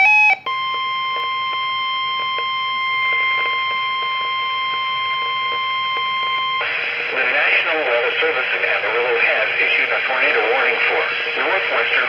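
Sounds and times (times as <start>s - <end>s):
steady alarm tone: 0.0s - 8.3s.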